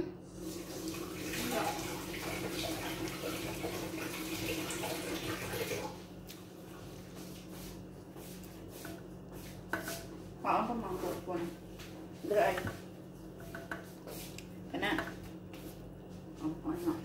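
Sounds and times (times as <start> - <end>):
water running from tap: 0.3 - 6.1.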